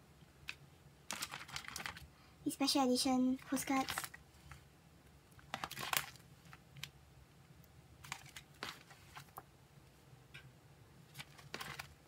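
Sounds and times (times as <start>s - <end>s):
postcards and plastic sleeves rustling: 0.4s - 7.0s, 7.9s - 10.0s, 11.0s - 12.0s.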